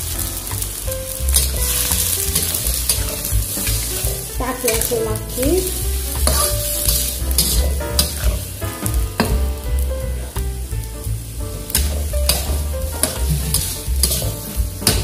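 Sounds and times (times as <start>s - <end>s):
vegetables sizzling in oil: 0.0s - 15.0s
metal spatula scraping wok: 1.2s - 9.0s, 11.7s - 15.0s.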